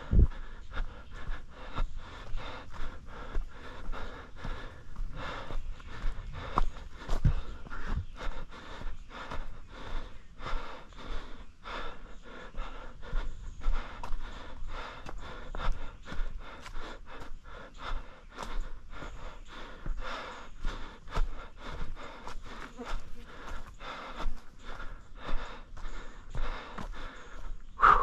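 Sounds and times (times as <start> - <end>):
runner panting: 0.0 - 28.0
footfalls on rocky trail: 6.0 - 8.0.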